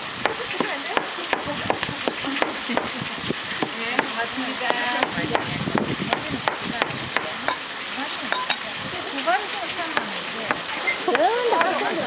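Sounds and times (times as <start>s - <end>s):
knife chopping on plastic board: 1.0s - 2.9s.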